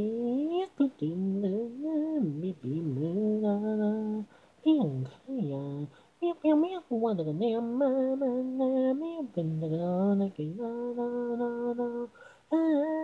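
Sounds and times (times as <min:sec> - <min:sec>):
woman singing: 0:00.0 - 0:13.0
singer breathing in: 0:04.3 - 0:04.6, 0:12.1 - 0:12.5.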